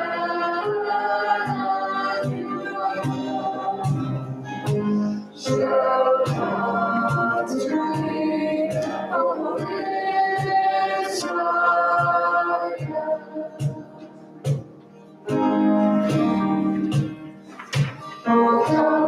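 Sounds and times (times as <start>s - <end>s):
group singing worship song: 0.0s - 14.6s, 17.8s - 19.0s
instrumental accompaniment with beat: 0.0s - 19.0s.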